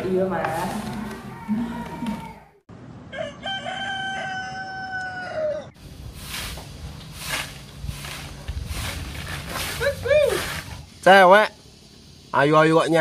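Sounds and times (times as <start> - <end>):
broom scratching dirt ground: 0.0 - 1.4, 5.8 - 11.2
rooster crowing: 1.2 - 5.8.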